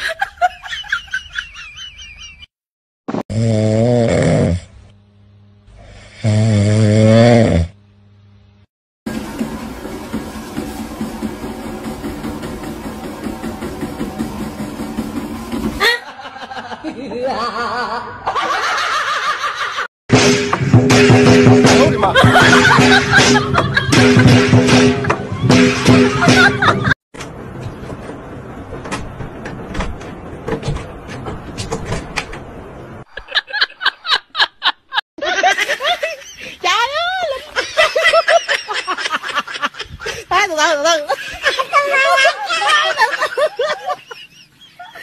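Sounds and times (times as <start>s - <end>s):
treadmill motor running: 9.1s - 16.0s
wavering laughter-like voice: 15.8s - 18.4s
bursts of laughter: 25.0s - 27.0s, 41.1s - 45.0s.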